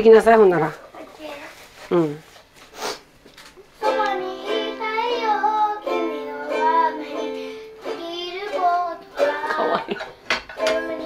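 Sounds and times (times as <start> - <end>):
child singing: 3.8 - 10.0, 10.6 - 11.0
plucked string instrument chords: 3.8 - 11.0.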